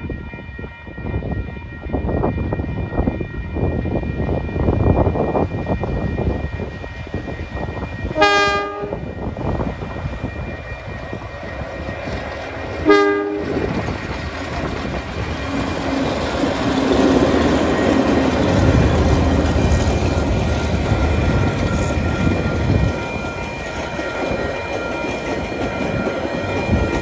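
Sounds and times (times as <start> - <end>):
train wheel noise: 0.0 - 27.0
train horn blasts: 8.1 - 9.3, 12.8 - 13.8
locomotive engine rumble: 8.7 - 27.0.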